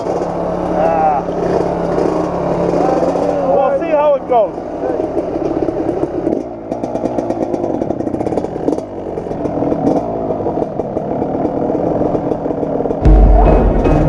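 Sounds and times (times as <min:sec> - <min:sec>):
dirt bike engine accelerating: 0:00.0 - 0:14.0.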